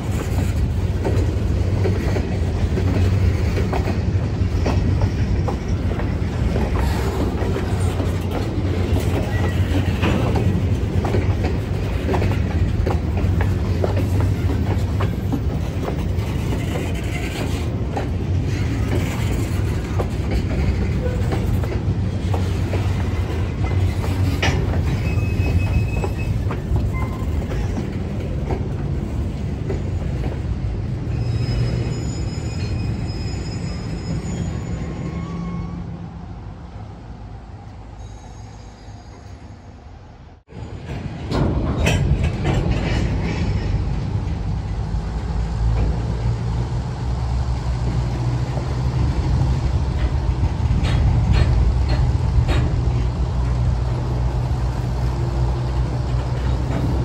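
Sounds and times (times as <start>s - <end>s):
wheels clicking over rail joints: 0.0s - 32.8s, 40.6s - 57.0s
locomotive rumble: 0.0s - 57.0s
high wheel squeals: 9.0s - 10.4s, 22.8s - 27.8s, 31.0s - 36.1s, 37.9s - 39.8s.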